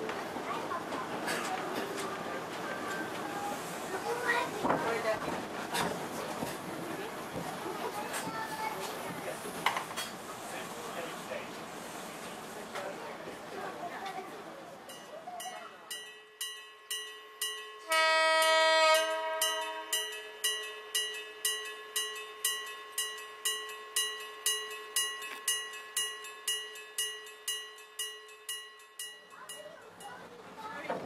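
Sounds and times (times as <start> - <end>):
level crossing bell ringing: 14.9 - 30.2
train horn blast: 17.9 - 20.1.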